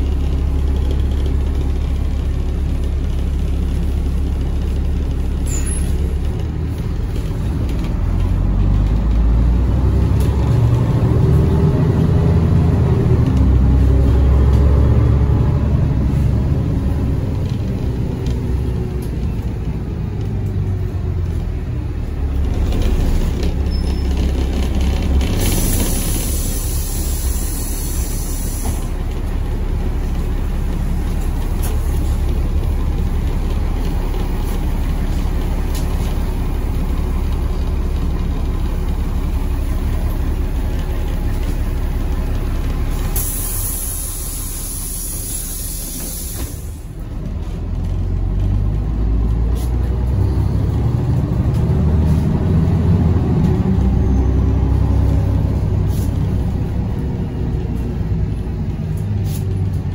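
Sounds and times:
bus engine and road rumble: 0.0 - 59.9
compressed air hiss: 25.4 - 28.9, 43.2 - 46.8.

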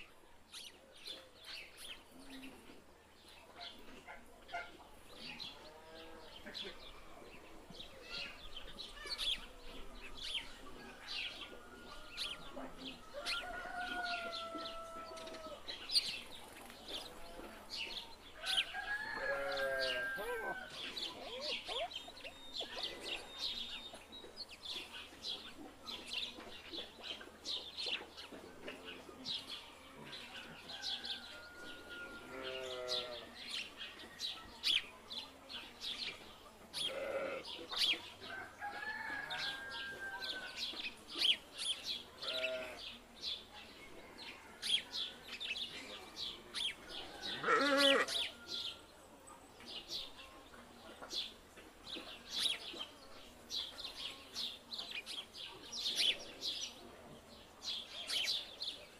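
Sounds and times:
small birds chirping: 11.5 - 31.5
rooster crowing: 18.5 - 20.7.

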